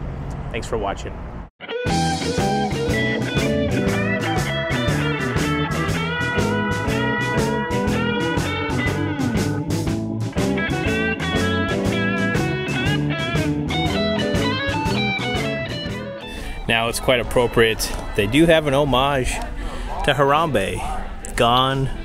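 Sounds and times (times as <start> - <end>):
electric guitar instrumental music: 1.6 - 18.4.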